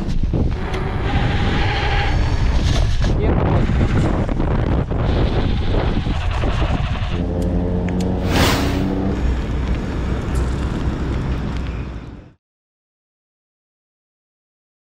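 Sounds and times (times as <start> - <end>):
wind buffeting microphone: 0.0 - 7.2
steady engine hum: 3.5 - 12.4.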